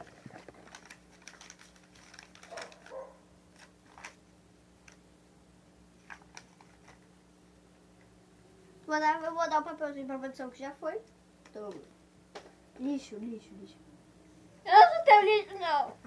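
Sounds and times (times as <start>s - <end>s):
paper rustling and clicks: 0.0s - 4.2s, 6.0s - 7.1s
low electrical hum: 0.0s - 16.0s.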